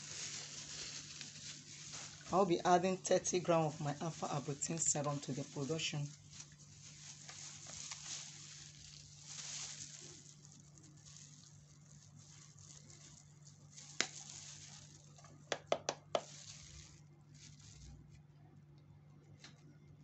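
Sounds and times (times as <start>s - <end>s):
faint rustling: 0.0s - 15.3s.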